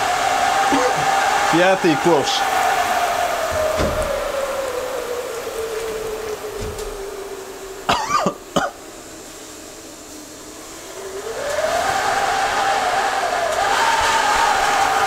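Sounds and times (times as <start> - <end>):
sauna stove steam hissing: 0.0 - 15.0
man coughing: 7.9 - 8.8.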